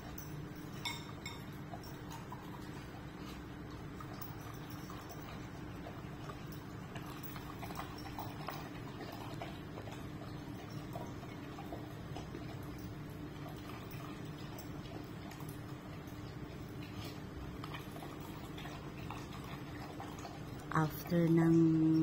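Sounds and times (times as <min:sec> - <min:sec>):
dog chewing and lapping: 0:00.0 - 0:22.0
steady low hum: 0:00.0 - 0:22.0.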